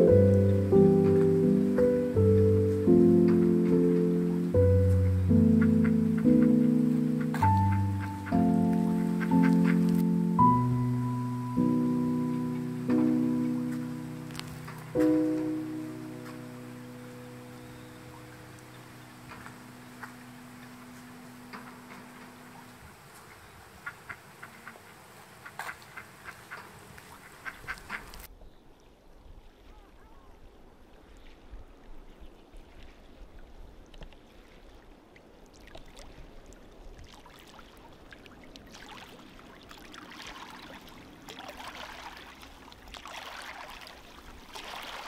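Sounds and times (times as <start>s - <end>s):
faint outdoor ambience: 0.0s - 29.1s, 36.6s - 45.0s
duck clicks and soft calls: 4.8s - 10.4s, 19.3s - 22.3s, 25.4s - 28.3s.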